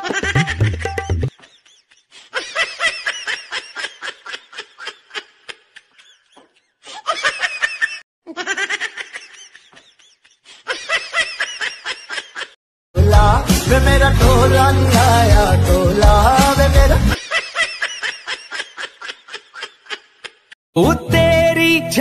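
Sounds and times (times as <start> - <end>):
high-pitched laughter: 0.0 - 12.6, 17.1 - 20.6.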